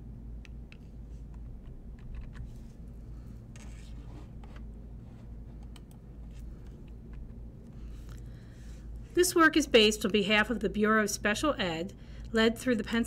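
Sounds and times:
low room hum: 0.0s - 13.0s
faint handling clicks and rustling: 0.7s - 9.2s.

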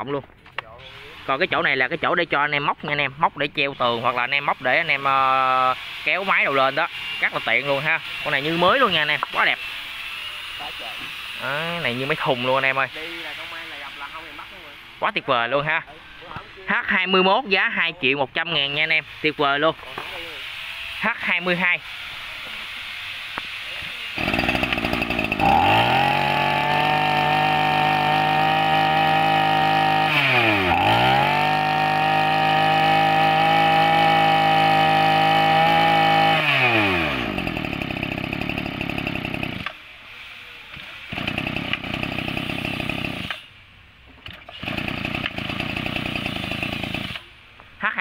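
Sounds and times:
brush-cutter engine revving: 24.0s - 39.9s, 41.0s - 43.5s, 44.4s - 47.3s.

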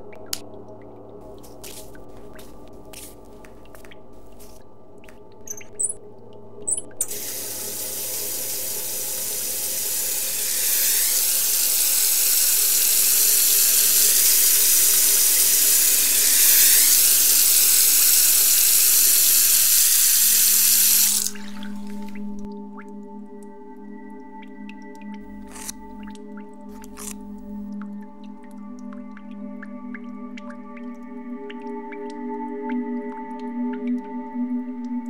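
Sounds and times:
short high squeaks: 5.5s - 6.0s
tap water running into sink: 6.7s - 22.4s.

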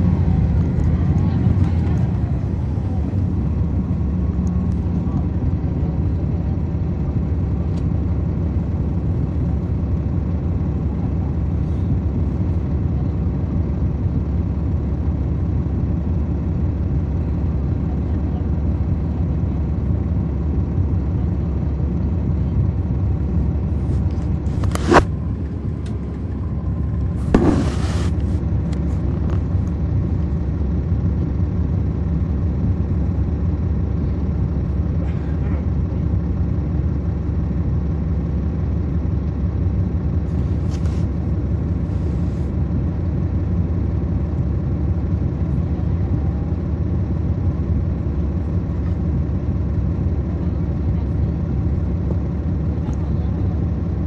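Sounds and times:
bus diesel engine drone: 0.0s - 54.0s
sharp bang: 27.2s - 28.2s
short noisy burst: 27.2s - 28.4s.

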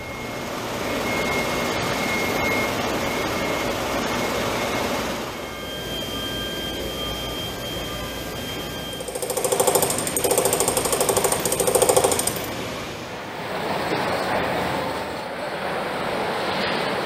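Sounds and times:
faint high whine: 0.0s - 13.4s
pneumatic tool rattling: 9.0s - 12.6s.

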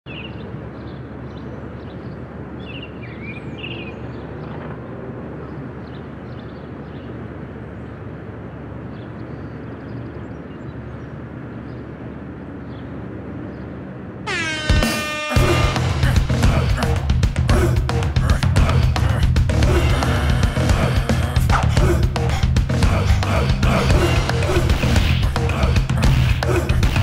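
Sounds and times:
bird chirps: 0.1s - 4.7s
distant traffic rumble: 0.1s - 27.0s.

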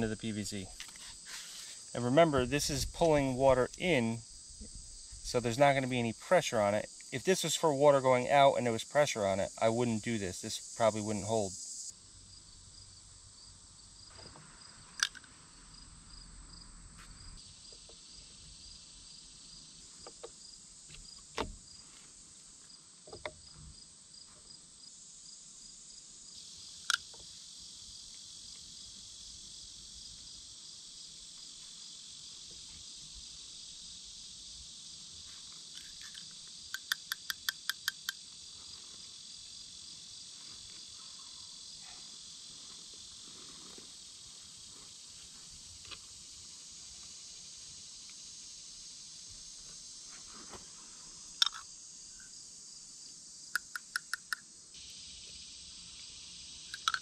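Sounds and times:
insect chorus chirping: 0.0s - 57.0s
plastic pipe fittings clicking: 15.0s - 15.3s, 35.8s - 38.2s, 51.4s - 51.6s, 56.7s - 57.0s.

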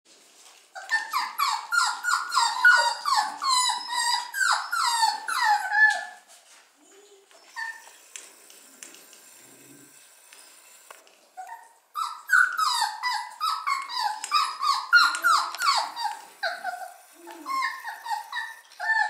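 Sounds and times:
puppy whimpering and yelping: 0.8s - 8.1s, 11.4s - 19.0s.

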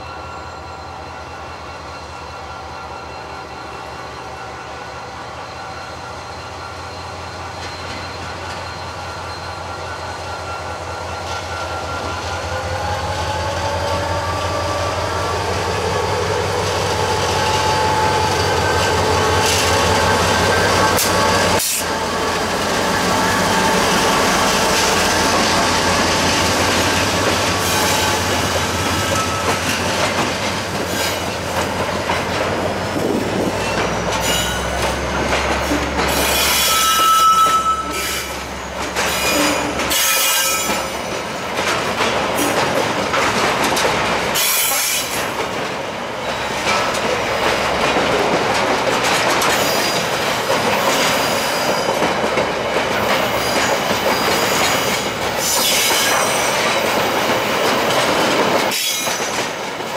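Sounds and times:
high wheel squeals: 0.0s - 13.0s, 13.6s - 29.9s, 33.4s - 41.2s
diesel locomotive hum: 0.0s - 59.9s
train wheels rumbling on rail: 0.0s - 59.9s.

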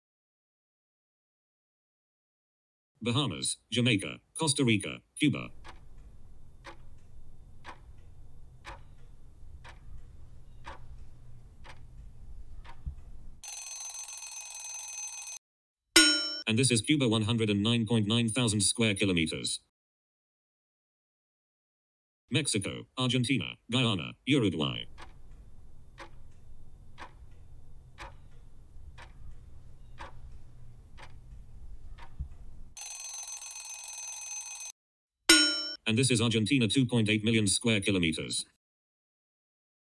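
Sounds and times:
timer ticking: 5.2s - 15.4s, 24.6s - 34.7s
ringing alarm tone: 13.4s - 15.4s, 32.8s - 34.7s
low steady hum: 24.7s - 32.8s.

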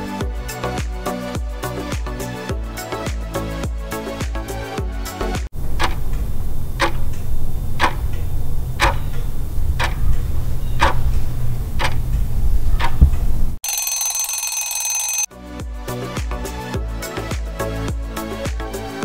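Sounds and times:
music: 0.0s - 5.5s, 15.3s - 19.0s
low rumble: 5.6s - 13.6s
clock ticking: 5.7s - 9.2s, 9.8s - 10.2s
alarm clock bell ringing: 13.6s - 15.3s.

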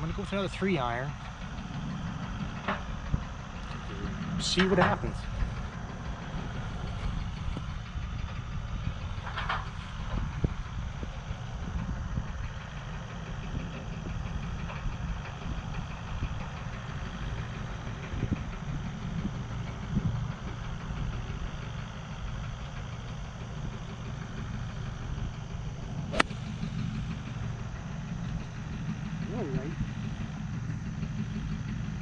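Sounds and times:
golf club striking ball: 26.1s - 27.4s.

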